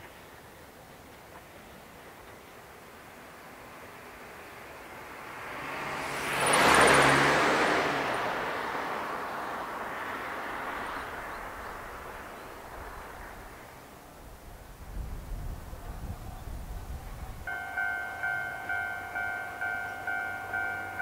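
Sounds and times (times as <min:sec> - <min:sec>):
vehicle passing by: 0:04.9 - 0:13.8.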